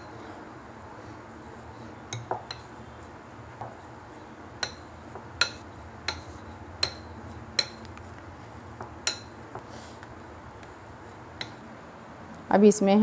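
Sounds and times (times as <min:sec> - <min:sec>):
masher clinking against glass bowl: 0:04.6 - 0:07.8, 0:09.0 - 0:09.4.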